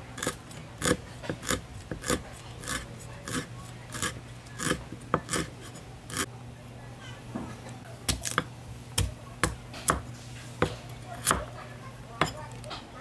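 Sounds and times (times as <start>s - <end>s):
cleaver chopping on wooden block: 0.2s - 5.5s, 8.1s - 11.5s.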